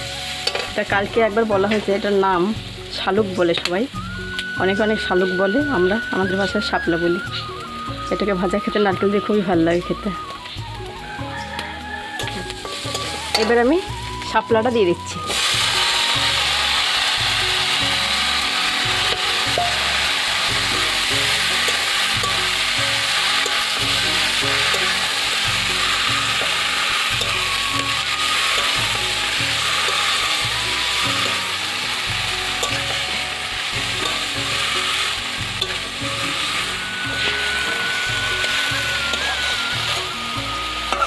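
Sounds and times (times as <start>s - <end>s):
metal spatula stirring in pan: 0.0s - 0.9s, 11.4s - 13.7s, 17.6s - 41.0s
stems sizzling in hot oil: 0.0s - 41.0s.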